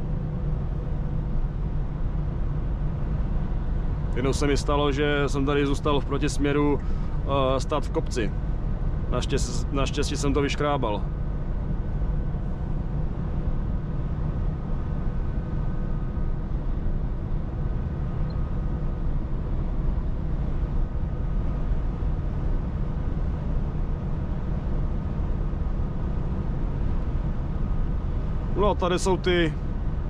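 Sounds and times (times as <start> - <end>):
faint steady whine: 0.0 - 30.0
truck engine and road noise drone: 0.0 - 30.0.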